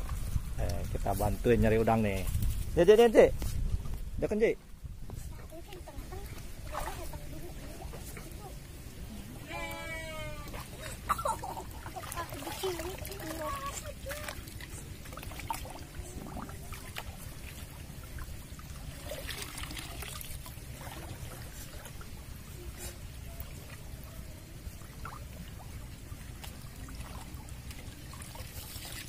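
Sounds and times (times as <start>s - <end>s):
shallow water trickling and splashing: 0.0s - 29.0s
water running off basket: 5.8s - 29.0s.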